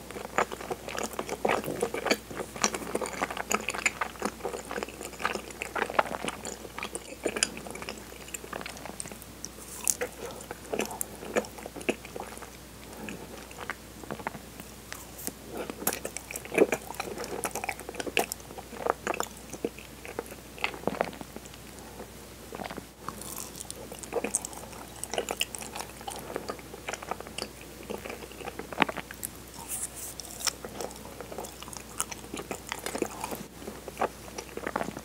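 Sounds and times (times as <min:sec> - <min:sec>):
moist chewing: 0:22.6 - 0:35.0.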